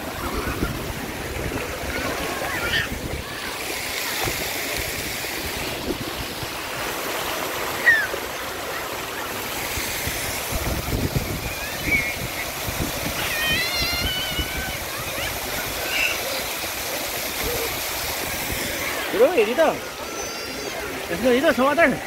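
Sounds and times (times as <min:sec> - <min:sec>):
children's voices: 0:00.0 - 0:04.4, 0:10.7 - 0:21.1
fountain jets spraying water: 0:00.0 - 0:22.0
child squealing: 0:02.4 - 0:03.5, 0:07.8 - 0:08.2, 0:11.4 - 0:12.3, 0:13.2 - 0:16.5, 0:19.8 - 0:21.0.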